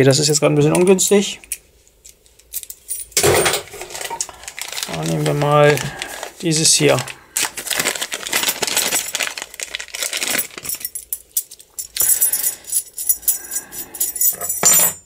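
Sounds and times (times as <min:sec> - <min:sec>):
metal keys clicking and clinking: 0:01.4 - 0:04.3, 0:08.1 - 0:15.0
plastic bag crinkling: 0:03.4 - 0:11.2.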